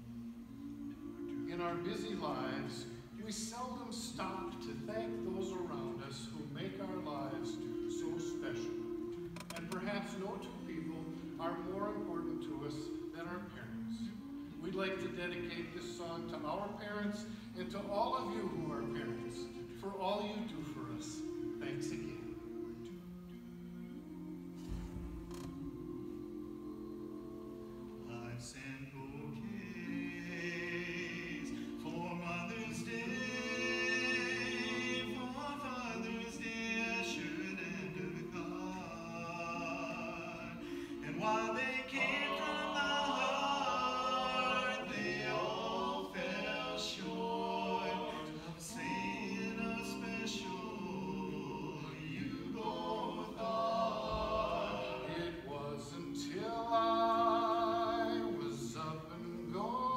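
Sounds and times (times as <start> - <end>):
men singing in close harmony: 25.3 - 59.9.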